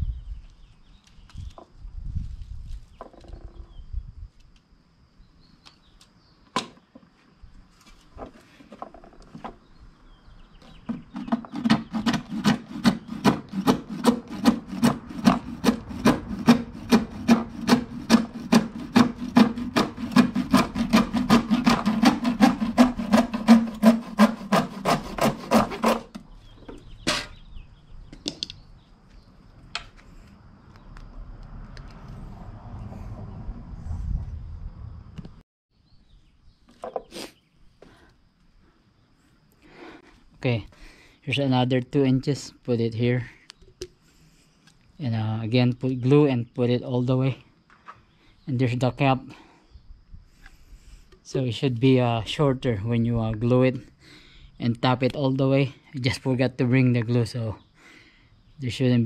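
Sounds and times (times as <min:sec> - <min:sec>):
hand saw cutting plastic pipe: 0:10.9 - 0:26.2
sharp knocks: 0:10.9 - 0:26.2.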